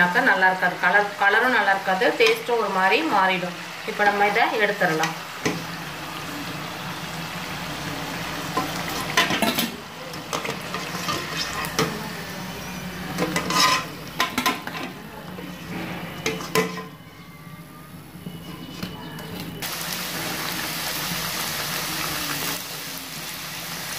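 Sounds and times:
hot oil sizzling in a frying pan: 0.0s - 14.7s, 19.6s - 23.9s
utensil clinking and scraping pan: 8.6s - 12.0s, 13.1s - 15.0s.

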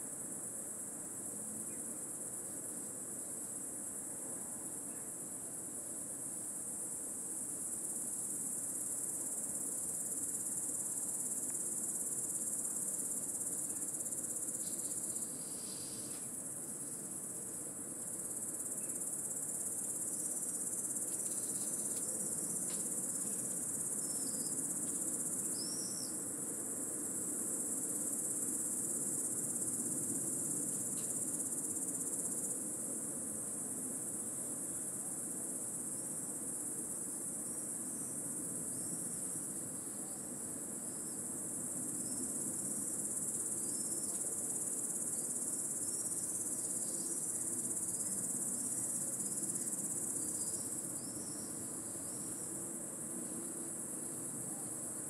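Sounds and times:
insects singing: 18.6s - 26.2s.

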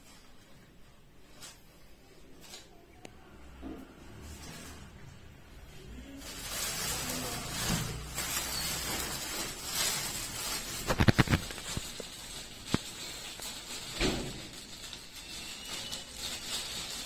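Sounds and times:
plastic wrapping rustling: 4.0s - 17.0s.

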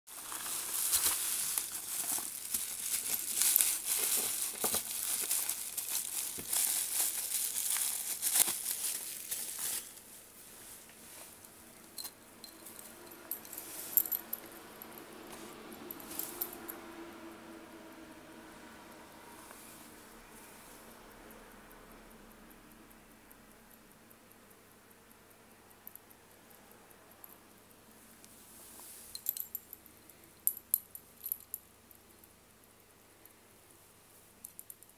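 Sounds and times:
packaging crinkling and rustling: 0.1s - 10.1s.

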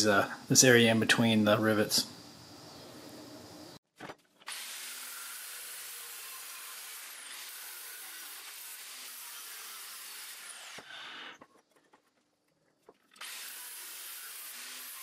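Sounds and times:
angle grinder cutting steel: 4.5s - 11.4s, 13.2s - 15.0s.

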